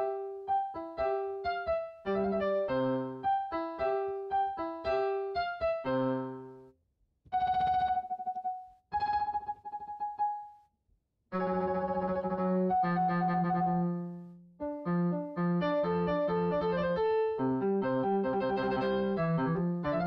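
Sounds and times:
long held piano notes: 0.0 - 6.5
piano chords: 0.0 - 6.6, 7.4 - 10.6, 11.4 - 20.0
piano melody: 0.0 - 6.6, 7.4 - 10.6, 11.4 - 20.0.

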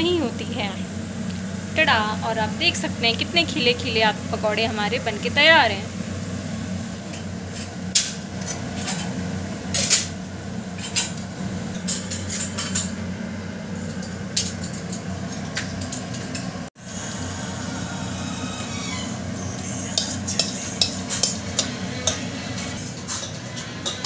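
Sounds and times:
steady low hum: 0.0 - 23.7
hot oil sizzling: 0.0 - 24.0
spoon scraping steel bowl: 19.8 - 24.0.

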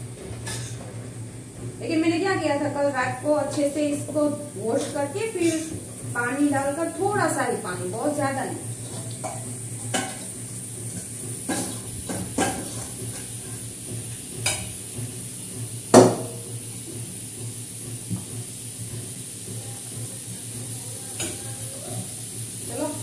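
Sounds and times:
spoon scraping metal pan: 4.8 - 5.7.

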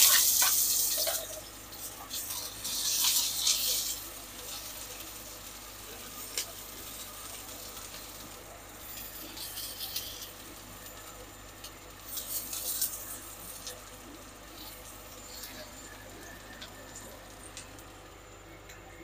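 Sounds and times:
onion sizzling in oil: 0.0 - 18.4
spatula scraping a pan: 2.1 - 4.6, 8.8 - 10.4, 12.1 - 13.6.

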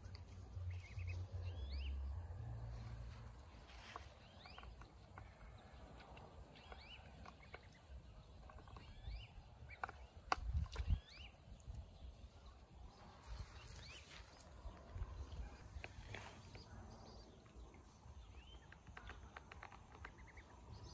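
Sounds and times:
ducklings peeping: 0.0 - 2.0, 3.5 - 14.1, 19.9 - 20.9.

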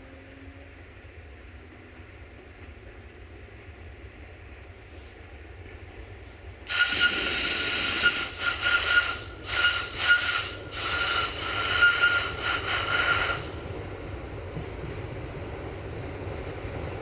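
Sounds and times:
low train rumble: 0.0 - 17.0
shrill locomotive whistle blasts: 6.7 - 13.6.

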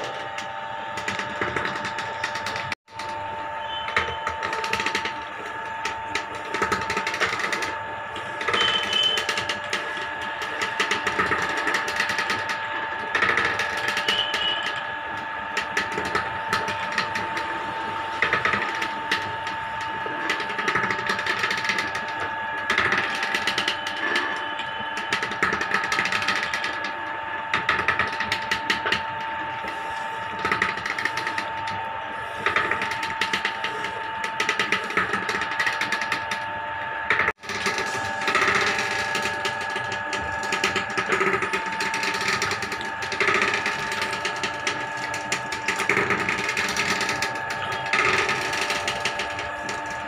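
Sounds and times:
oil mill machine hum: 0.0 - 50.0
clicking creaking and rattling: 27.5 - 31.8, 37.1 - 50.0.

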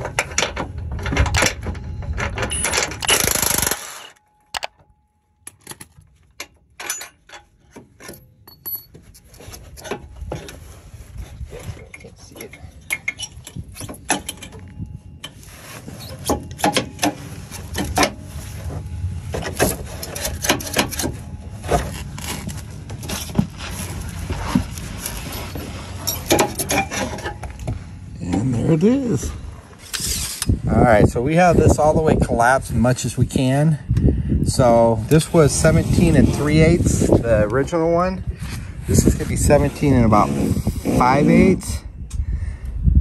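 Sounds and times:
sharp metallic clicks and knocks: 0.0 - 9.0
metal parts clinking and clanking: 0.0 - 10.6, 11.9 - 15.4, 16.0 - 23.5, 24.8 - 27.8, 29.8 - 30.6.

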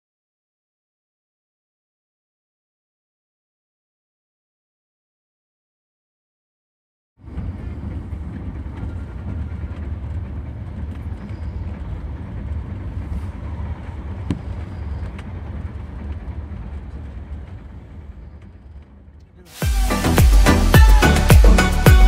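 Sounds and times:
train rumbling on rails: 7.2 - 22.0.

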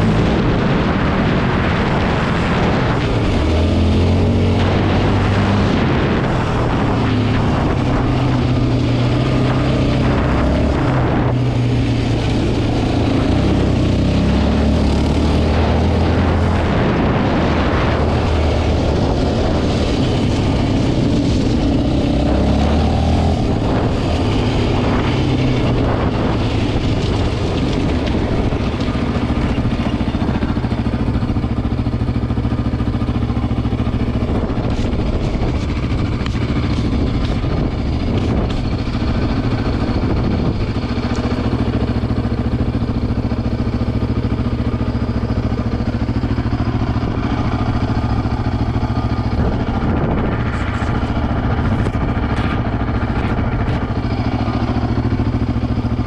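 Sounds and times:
quad bike engine: 0.0 - 56.0.

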